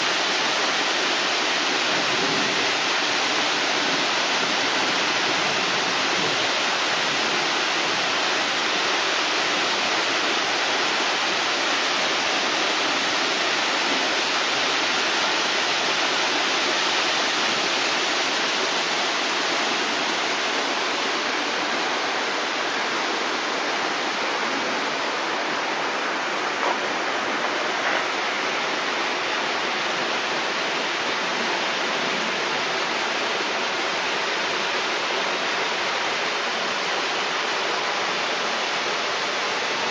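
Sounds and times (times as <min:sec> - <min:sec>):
water rushing over dam: 0:00.0 - 0:39.9.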